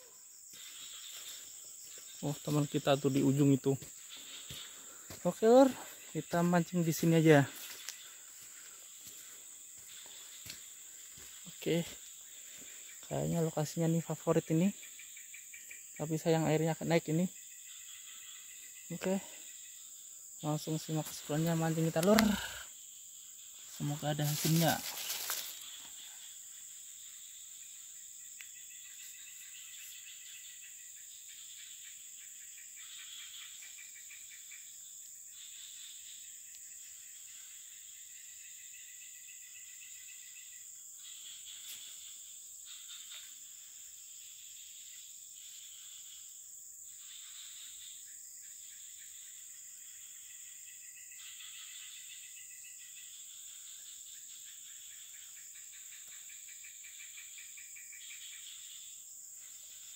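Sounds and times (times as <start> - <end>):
high-pitched insect drone: 0.0 - 59.9
lower insect trills: 0.0 - 59.9.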